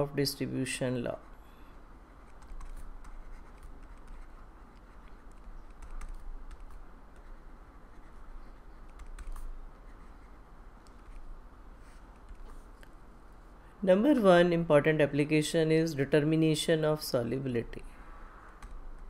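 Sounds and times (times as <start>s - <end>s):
steady low hum: 0.0s - 19.0s
pen scratching on writing pad: 2.1s - 10.4s.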